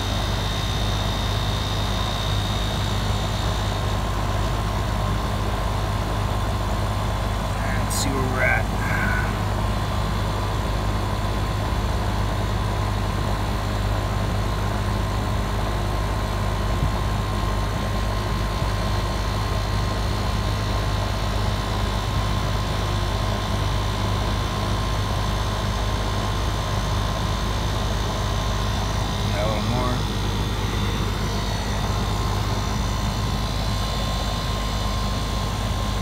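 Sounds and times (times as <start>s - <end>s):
air conditioner low hum: 0.0s - 36.0s
faint constant whine: 0.0s - 36.0s.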